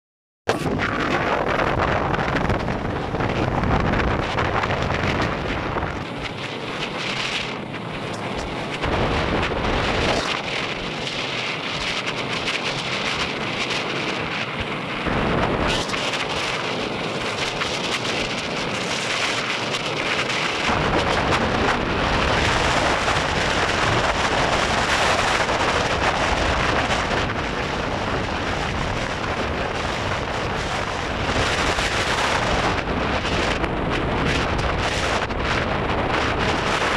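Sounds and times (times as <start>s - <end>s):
car wind and road noise: 0.5s - 36.9s
wind buffeting microphone: 0.5s - 36.9s.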